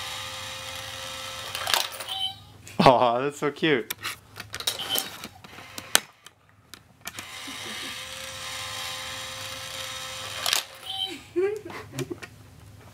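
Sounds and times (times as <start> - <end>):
small gear motor whirring: 0.0 - 2.1, 7.1 - 11.0.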